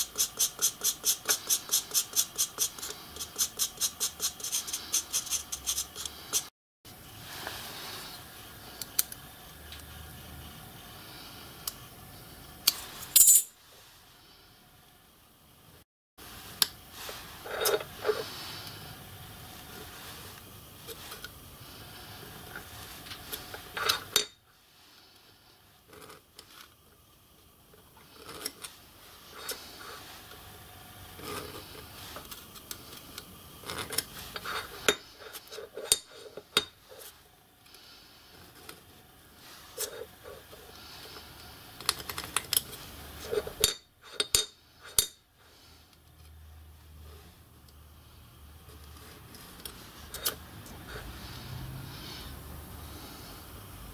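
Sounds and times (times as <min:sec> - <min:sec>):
steel tools clinking and scratching: 0:13.0 - 0:13.6.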